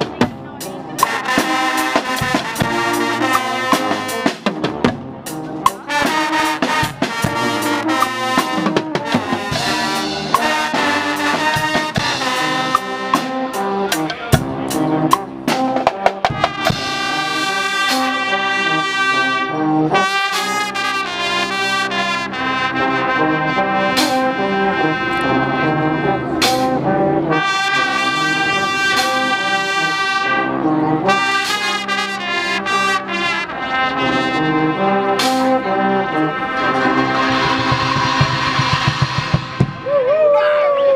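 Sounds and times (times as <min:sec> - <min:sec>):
drum strikes: 0:00.0 - 0:18.1, 0:37.1 - 0:39.9
brass band playing: 0:00.0 - 0:40.2.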